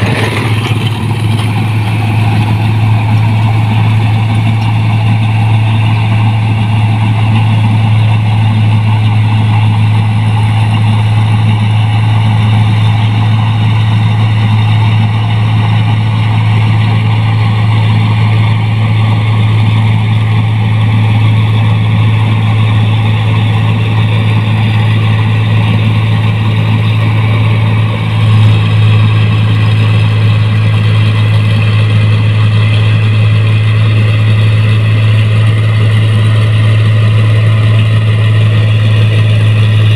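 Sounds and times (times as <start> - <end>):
combine harvester running: 0.0 - 39.9.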